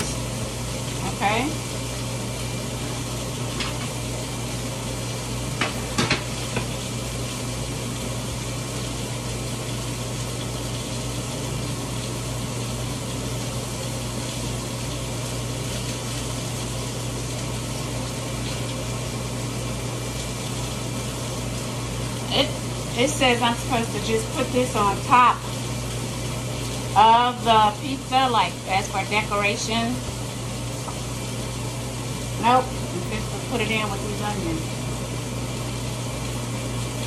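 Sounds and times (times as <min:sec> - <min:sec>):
onions sizzling in a skillet: 0:00.0 - 0:37.0.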